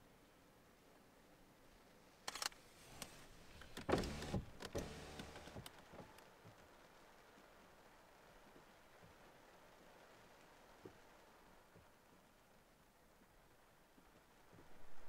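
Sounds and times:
camera shutter clicks: 2.2s - 3.1s.

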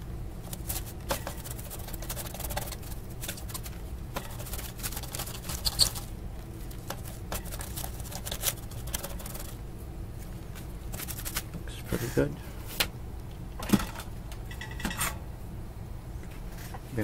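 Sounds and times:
brush scratching tissue: 0.4s - 6.1s, 6.7s - 9.6s, 10.2s - 12.2s.

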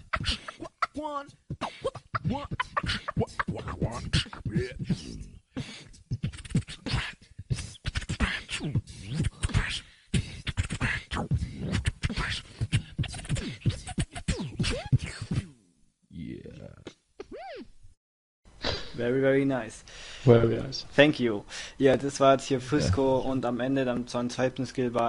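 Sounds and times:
beatboxing clicks and drum sounds: 0.0s - 15.6s, 16.6s - 17.7s
vocal scratching: 0.0s - 17.7s.

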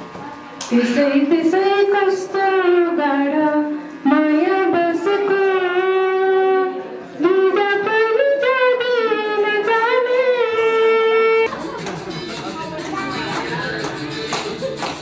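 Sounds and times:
woman singing unaccompanied: 0.7s - 10.9s.

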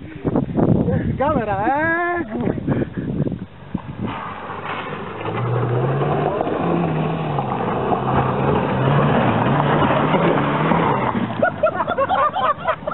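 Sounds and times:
off-road vehicle engine revving: 3.8s - 12.9s.

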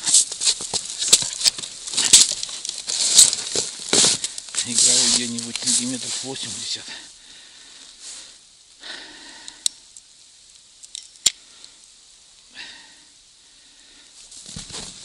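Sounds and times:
soft rustles of rod handling: 0.0s - 6.9s.

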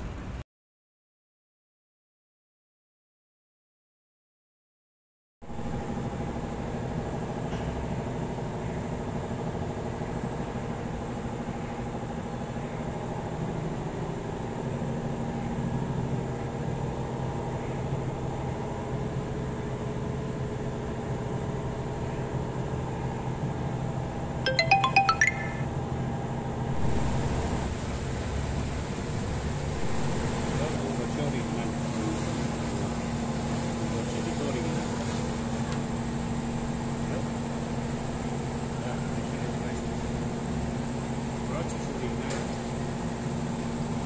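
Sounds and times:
bright chiming notes: 24.5s - 25.7s.

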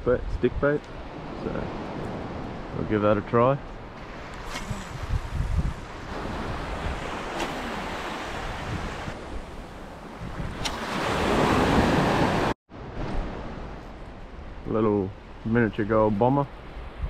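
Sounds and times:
wind buffeting microphone: 0.0s - 14.6s
small waves washing on sand: 3.8s - 12.5s.

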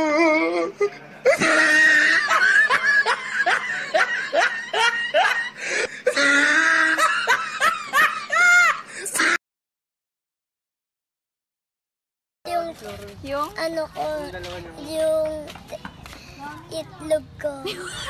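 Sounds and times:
people laughing hard: 1.2s - 9.3s, 17.7s - 18.0s.

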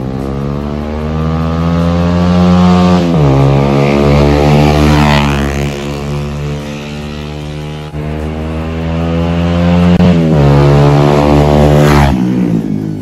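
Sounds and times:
motorcycle engine accelerating: 0.0s - 13.0s.

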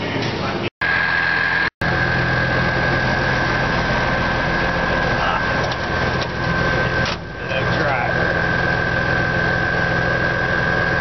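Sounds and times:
steady high whine: 0.4s - 11.0s
truck engine idling: 0.8s - 11.0s.

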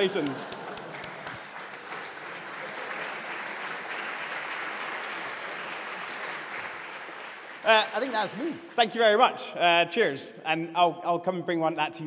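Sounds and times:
audience applauding: 0.0s - 8.6s.

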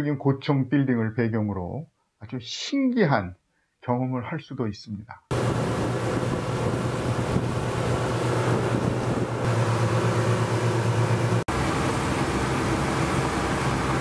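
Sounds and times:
wind buffeting microphone: 5.3s - 10.1s
outboard motor drone: 5.3s - 14.0s
rushing water: 5.3s - 14.0s.

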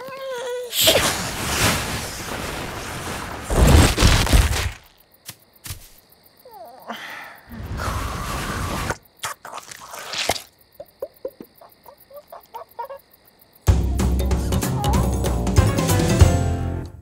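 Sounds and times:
cartoon rushing noise: 0.7s - 4.8s.

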